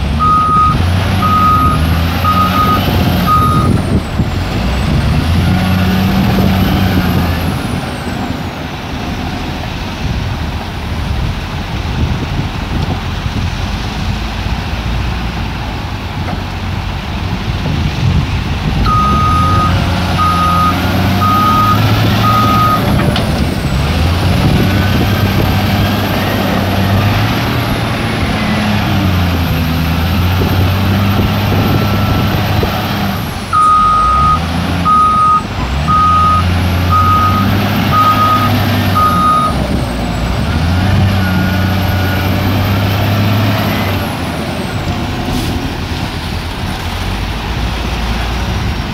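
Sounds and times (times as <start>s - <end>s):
diesel engine revving: 0.0s - 48.9s
reversing alarm beeps: 0.2s - 3.8s, 18.9s - 22.9s, 33.6s - 39.6s.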